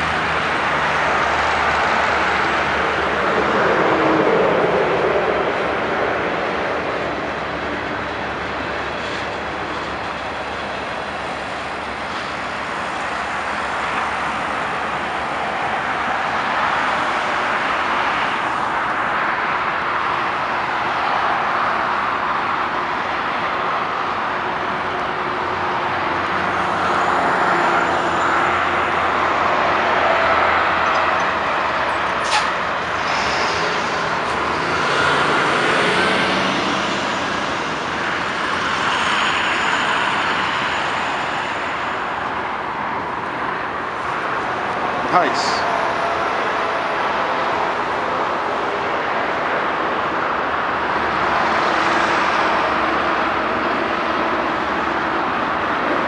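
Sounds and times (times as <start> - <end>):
highway traffic passing: 0.0 - 56.0.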